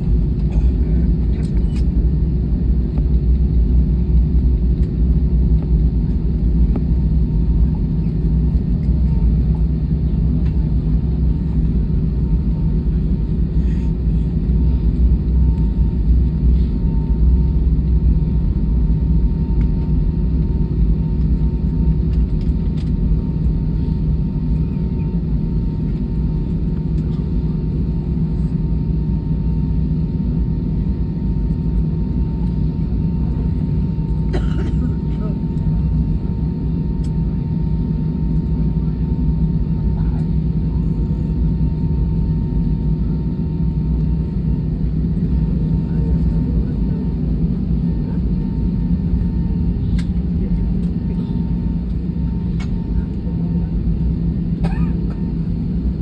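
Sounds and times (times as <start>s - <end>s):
airplane cabin rumble while taxiing: 0.0s - 56.0s.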